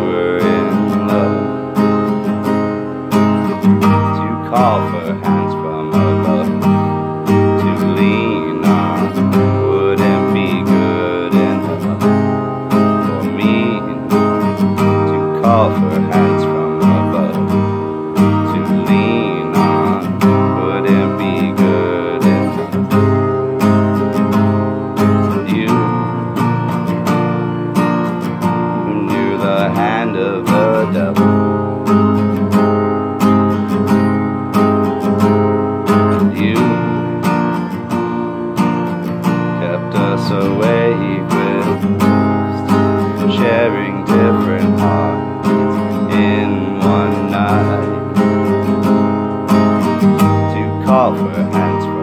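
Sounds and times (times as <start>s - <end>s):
acoustic guitar strumming: 0.0s - 52.0s.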